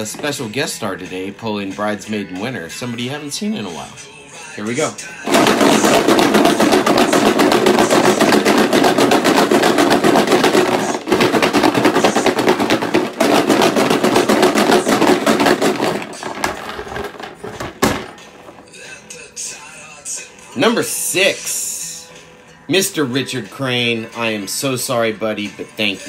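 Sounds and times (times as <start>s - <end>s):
plastic balls rattling in a tub: 0.0s - 2.0s, 4.7s - 18.8s.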